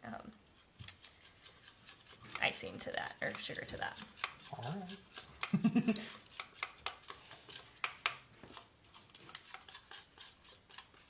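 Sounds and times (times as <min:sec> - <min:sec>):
spoon scraping against bowl: 0:00.5 - 0:11.0.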